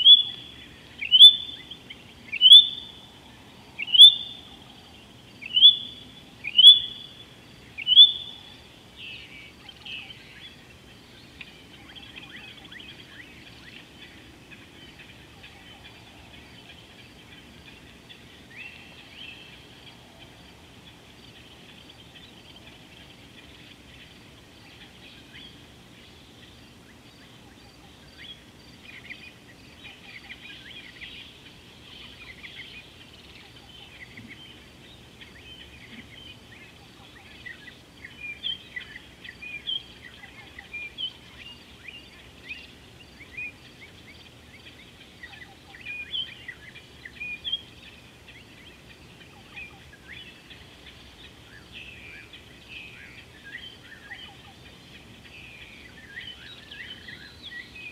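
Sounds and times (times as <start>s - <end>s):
birds chirping: 0.0s - 57.9s
faint steady background hiss: 0.0s - 57.9s.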